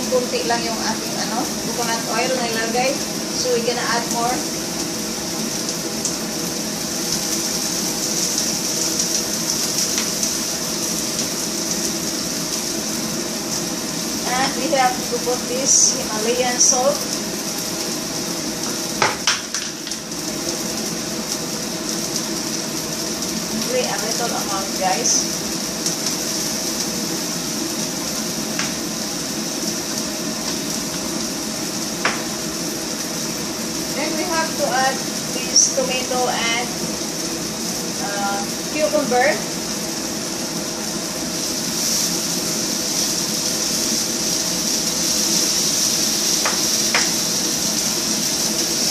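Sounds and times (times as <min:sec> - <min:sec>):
onions sizzling in a pan: 0:00.0 - 0:48.9.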